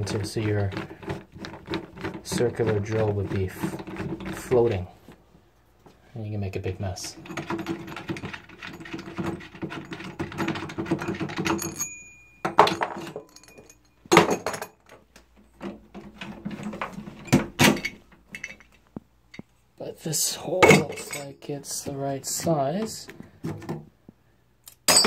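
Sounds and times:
metal lock parts rattling and clicking: 7.0s - 18.8s.

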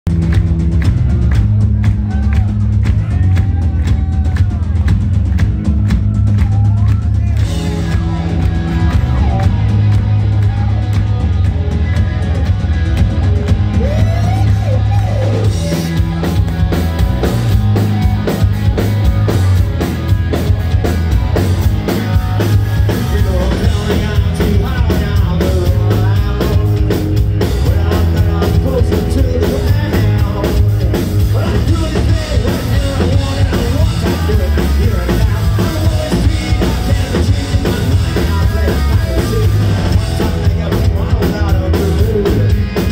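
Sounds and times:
bass guitar: 0.0s - 42.9s
distorted electric guitars: 0.1s - 42.9s
drum kit: 0.1s - 42.9s
lead singer singing: 13.6s - 16.5s, 21.8s - 42.9s.

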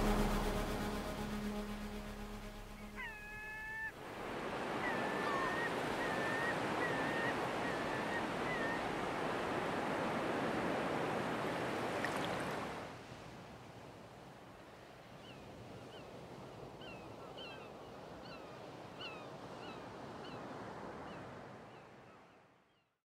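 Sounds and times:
gulls calling: 0.0s - 9.9s
surf washing on beach: 0.0s - 13.4s.

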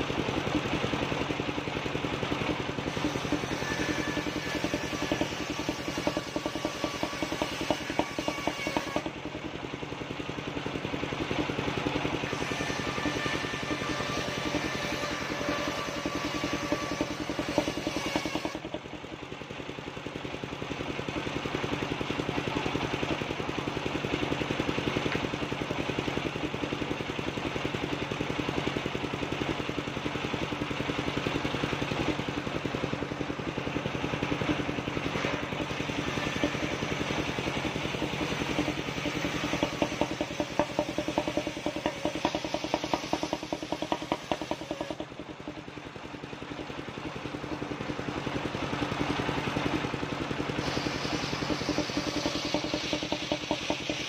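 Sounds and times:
engine chugging: 0.0s - 54.0s
circular saw ripping timber: 2.8s - 9.2s, 12.2s - 18.8s, 35.1s - 45.1s.

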